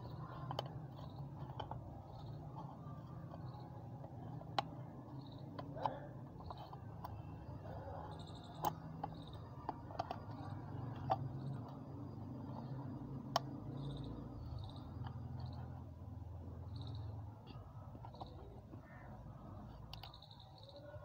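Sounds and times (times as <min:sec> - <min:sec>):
faint high chirps: 0:07.0 - 0:21.0.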